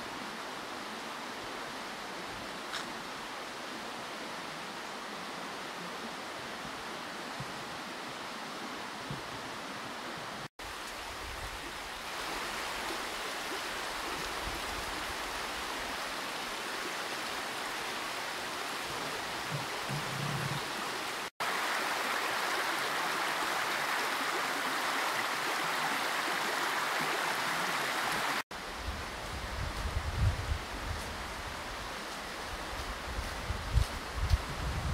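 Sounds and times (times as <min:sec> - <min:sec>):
creek running over stones: 0:10.6 - 0:28.6.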